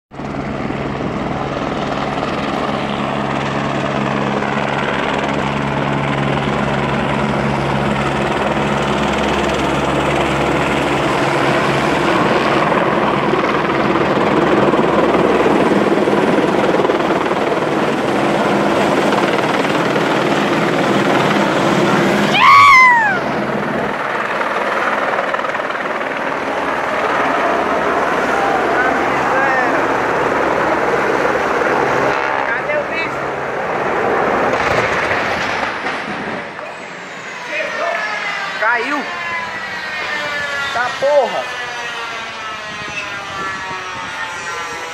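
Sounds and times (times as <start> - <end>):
helicopter rotor and engine: 0.1 - 44.9
falling whine: 19.2 - 24.1, 26.3 - 44.9.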